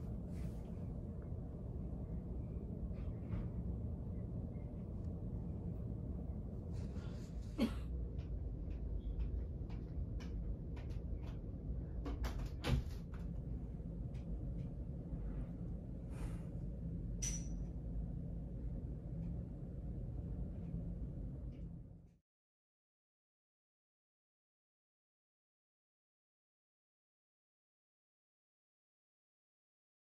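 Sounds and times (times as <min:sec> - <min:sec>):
steady low hum: 0:00.0 - 0:22.2
small knocks and clicks: 0:08.1 - 0:14.8.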